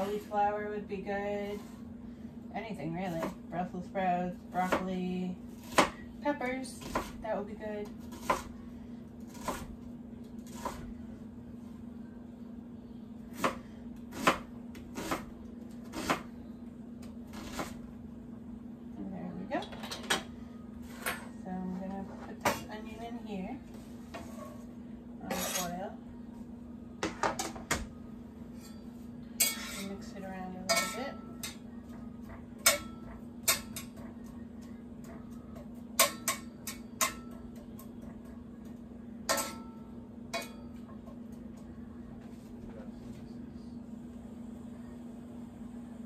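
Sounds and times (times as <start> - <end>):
steady low hum: 0.0 - 46.0
utensils knocking on pan and board: 30.6 - 31.6, 32.3 - 34.1, 35.1 - 37.8, 39.3 - 40.8.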